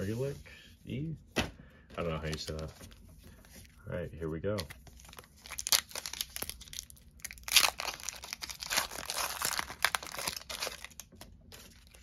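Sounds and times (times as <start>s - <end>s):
foil wrapper tearing and crackling: 5.0s - 12.0s.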